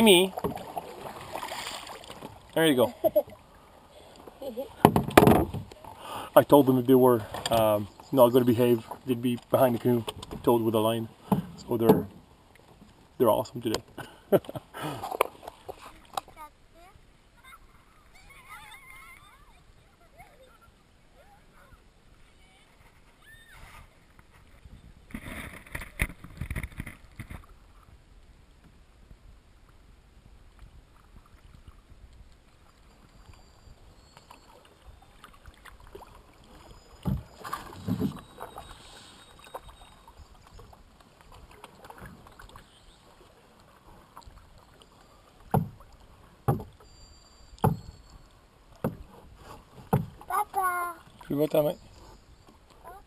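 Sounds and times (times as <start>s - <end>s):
soft paddle strokes in water: 0.0s - 53.0s
paddle knocking against canoe hull: 0.3s - 0.8s, 4.8s - 5.9s, 11.2s - 12.2s, 45.4s - 46.8s, 47.6s - 48.0s, 48.8s - 49.2s, 49.8s - 50.4s.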